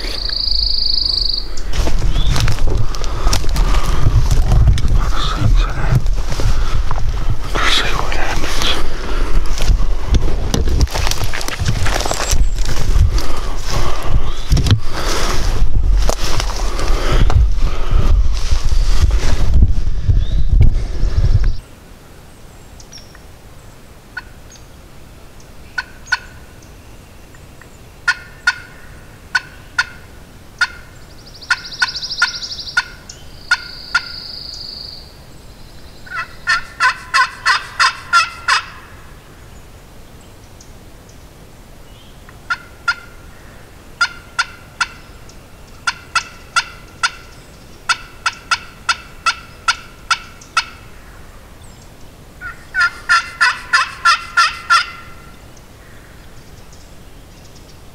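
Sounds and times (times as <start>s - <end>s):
steady high calls: 0.0s - 1.7s, 36.0s - 39.1s, 52.4s - 56.4s
turkey clucking: 28.1s - 28.7s, 29.3s - 30.0s, 30.6s - 30.9s, 31.5s - 34.1s, 36.1s - 38.9s, 42.5s - 43.2s, 44.0s - 45.1s, 45.8s - 50.8s, 52.4s - 55.2s.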